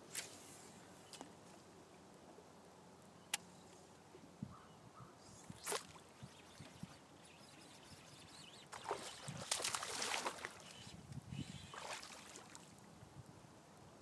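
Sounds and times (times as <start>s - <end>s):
fish splashing at water surface: 8.8s - 10.7s.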